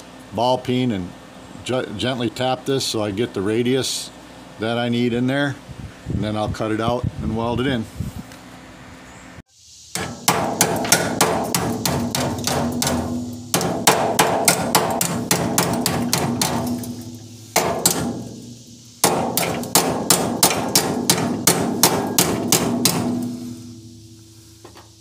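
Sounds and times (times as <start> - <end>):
hammer tapping sheet steel: 10.0 - 24.8.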